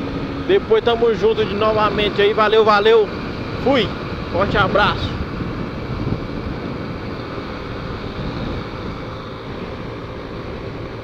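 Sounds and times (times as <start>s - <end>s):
motorcycle engine running evenly: 0.0s - 11.0s
wind noise on microphone: 3.0s - 11.0s.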